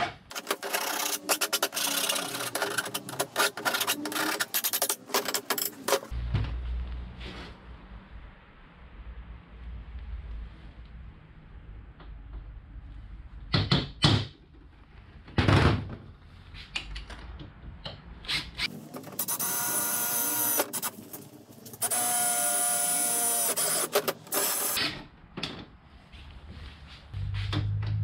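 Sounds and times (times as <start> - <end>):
cordless drill boring metal: 0.4 - 4.8, 19.2 - 20.9, 21.8 - 24.8.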